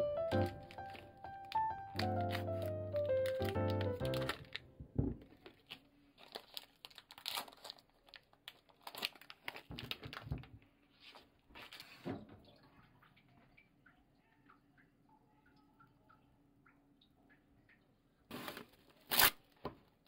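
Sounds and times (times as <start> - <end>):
plastic wrapping crinkling: 0.3 - 12.0, 18.3 - 19.4.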